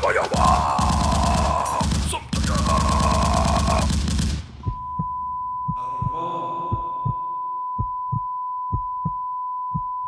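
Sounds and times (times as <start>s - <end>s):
machine-gun fire: 0.4s - 4.6s
heartbeat thumping: 0.4s - 10.0s.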